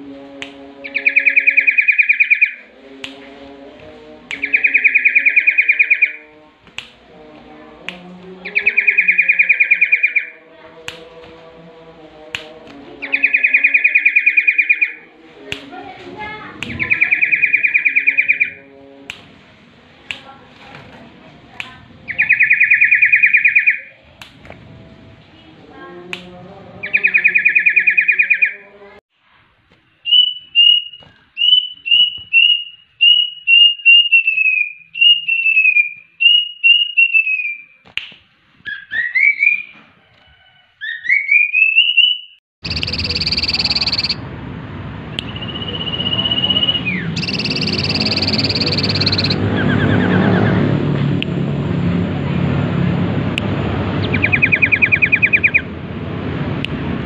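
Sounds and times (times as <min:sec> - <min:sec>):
bird rising slurred whistles: 0:30.0 - 0:37.8, 0:38.7 - 0:39.7, 0:40.8 - 0:44.2, 0:45.3 - 0:50.5
bird falling whistles: 0:30.1 - 0:37.7, 0:40.8 - 0:44.2, 0:45.3 - 0:49.4
steady high whistle: 0:41.0 - 0:44.2, 0:45.2 - 0:49.4
bird buzzing trill: 0:42.7 - 0:44.2, 0:47.2 - 0:49.4.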